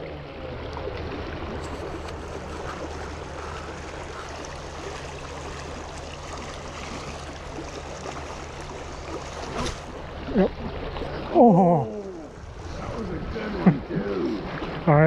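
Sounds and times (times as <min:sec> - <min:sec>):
creek water flowing over rocks: 0:00.0 - 0:15.0.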